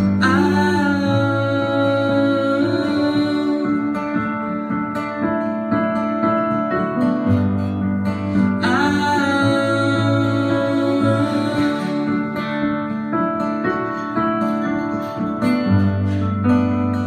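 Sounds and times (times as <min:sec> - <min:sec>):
person singing: 0:00.0 - 0:05.2, 0:08.2 - 0:13.4
acoustic guitar strumming: 0:00.0 - 0:17.0
piano: 0:00.0 - 0:17.0.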